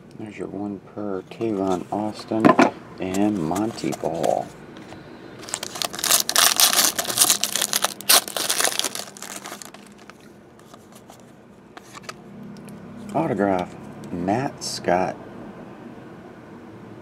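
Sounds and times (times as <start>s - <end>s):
foil wrapper tearing and crinkling: 5.4s - 10.2s.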